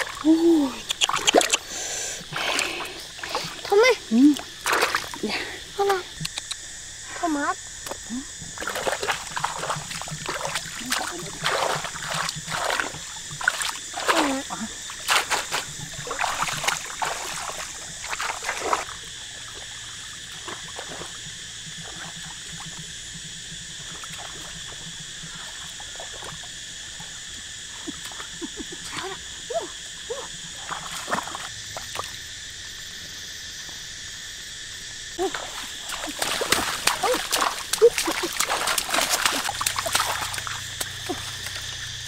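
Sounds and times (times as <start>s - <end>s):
water splashing and trickling: 0.0s - 6.5s, 7.1s - 32.2s, 35.2s - 42.0s
scattered clicks: 6.2s - 6.7s.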